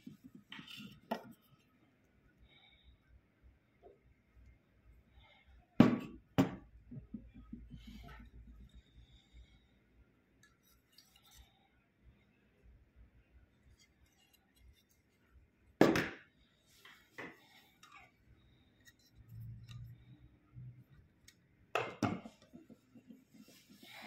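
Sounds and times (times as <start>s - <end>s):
metal gauges knocking on wooden table: 5.8s - 7.8s.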